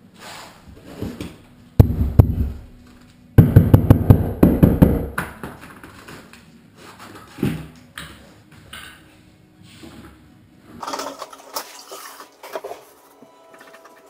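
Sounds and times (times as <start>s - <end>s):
knocking on wall tile: 1.8s - 2.7s, 3.4s - 5.7s.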